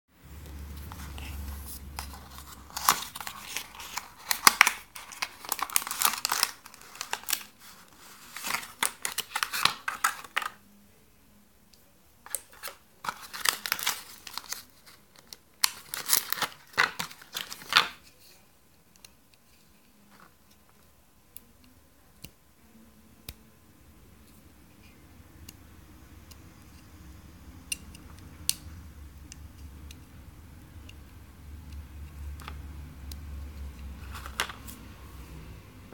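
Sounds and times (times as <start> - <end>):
cardboard and plastic packaging crinkling: 0.5 - 10.6, 12.2 - 18.1, 33.9 - 34.9.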